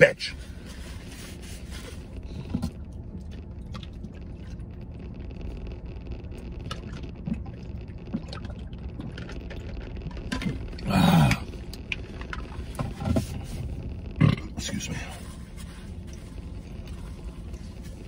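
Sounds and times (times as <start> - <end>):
low hum inside truck cab: 0.0 - 18.0
man gulping a drink: 6.6 - 14.6.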